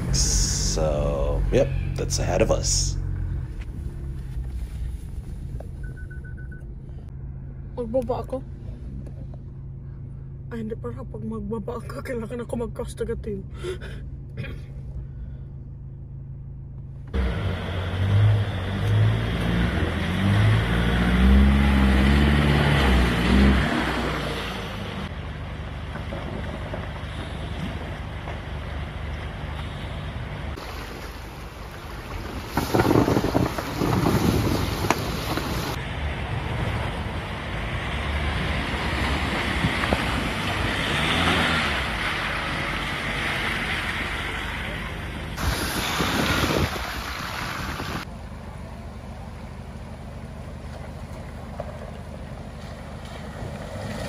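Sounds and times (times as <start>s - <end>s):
vehicle engine revving: 16.1s - 30.8s, 32.2s - 48.1s
rushing water: 26.8s - 35.8s, 37.8s - 48.1s
wind on microphone: 45.4s - 48.1s.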